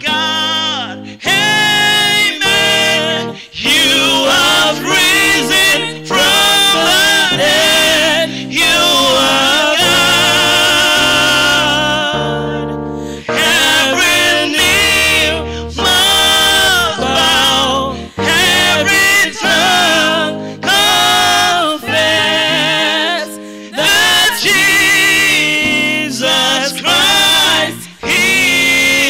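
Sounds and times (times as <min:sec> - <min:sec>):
female backing singers: 0:00.0 - 0:12.7, 0:13.3 - 0:29.0
held accompaniment chords: 0:00.0 - 0:29.0
man singing gospel: 0:00.0 - 0:29.0.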